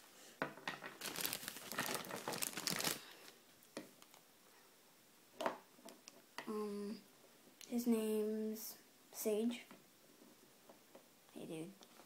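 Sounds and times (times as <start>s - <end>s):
crinkling rustling handling: 0.8s - 3.4s.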